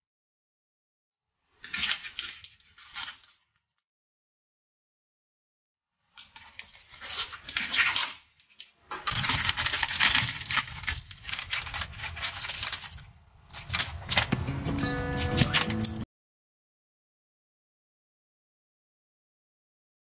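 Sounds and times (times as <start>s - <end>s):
plastic packaging crinkling: 1.6s - 3.6s, 6.2s - 16.0s.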